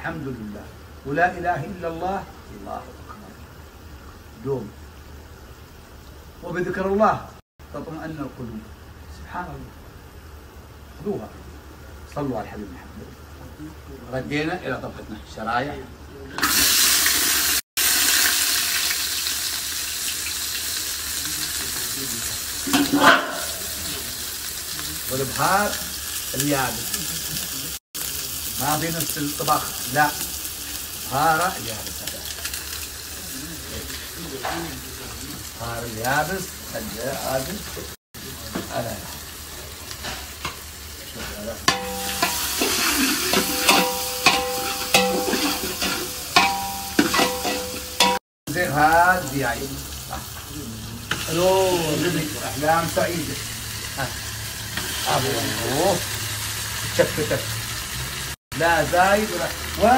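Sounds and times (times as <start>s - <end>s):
onions sizzling in hot oil: 16.4s - 59.9s
metal ladle scraping pot: 22.7s - 23.7s, 41.7s - 48.2s.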